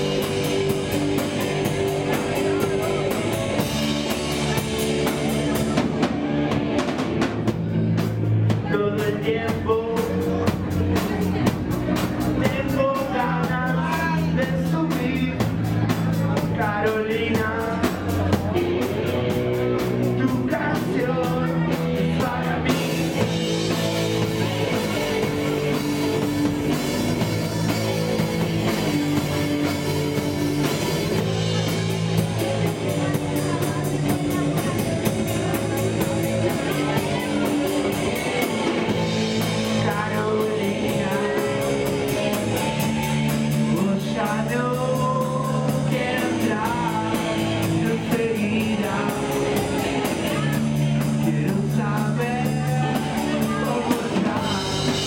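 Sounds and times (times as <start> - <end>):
male lead singer: 0.0 - 55.0
punk rock band playing: 0.0 - 55.0.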